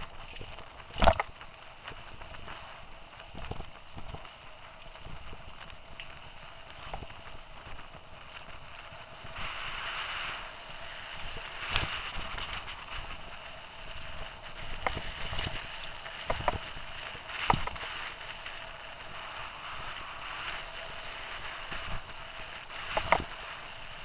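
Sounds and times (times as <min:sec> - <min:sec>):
bike tyres rolling on dirt: 0:00.0 - 0:24.0
wind noise on microphone: 0:08.5 - 0:24.0.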